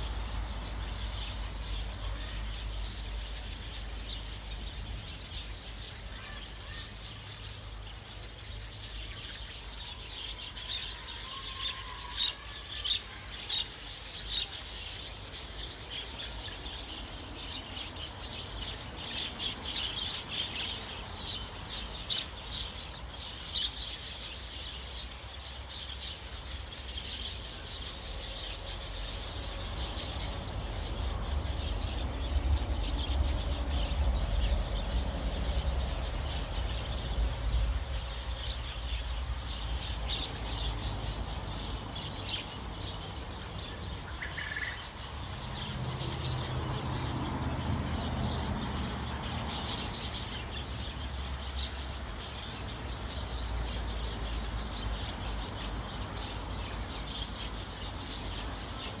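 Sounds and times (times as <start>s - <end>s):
budgerigars chirping: 0.0s - 47.0s.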